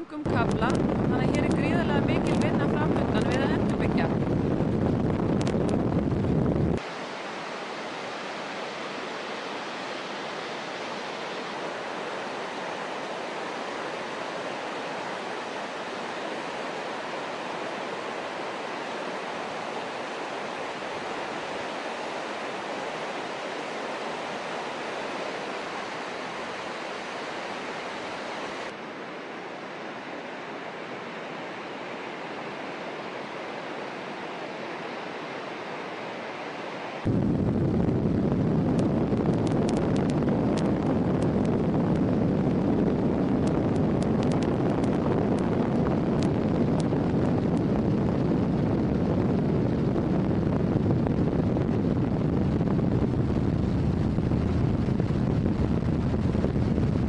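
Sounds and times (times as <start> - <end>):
low rumble: 0.0 - 6.8, 37.0 - 57.0
meltwater flood rushing: 6.8 - 57.0.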